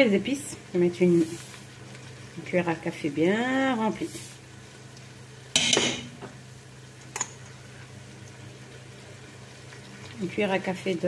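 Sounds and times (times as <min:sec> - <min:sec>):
spoon clinking on pot: 0:07.1 - 0:07.4.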